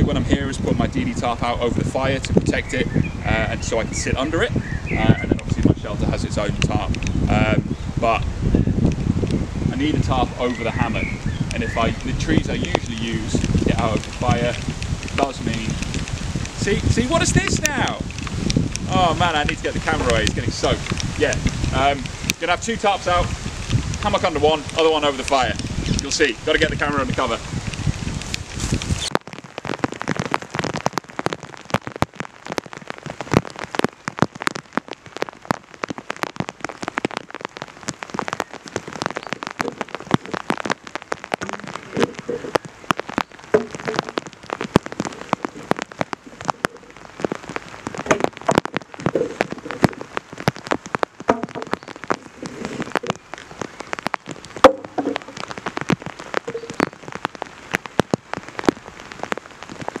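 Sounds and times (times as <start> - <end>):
raindrops striking close: 0.0 - 60.0
steady rain: 0.0 - 60.0.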